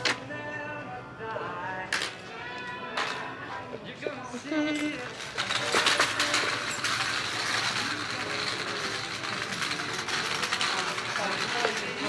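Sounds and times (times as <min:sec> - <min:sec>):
shopping cart rattling: 0:04.3 - 0:12.0.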